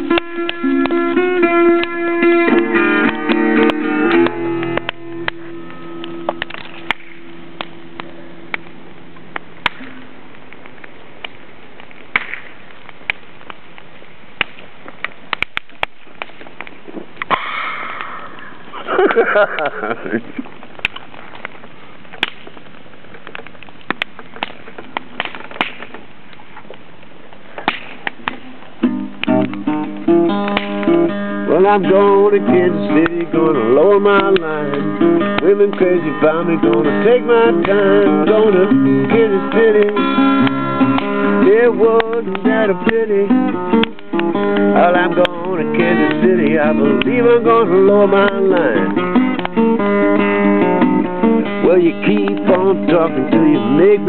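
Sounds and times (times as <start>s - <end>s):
acoustic guitar strummed chords: 0.0s - 6.4s, 28.8s - 54.0s
bonfire crackling and popping: 0.0s - 54.0s.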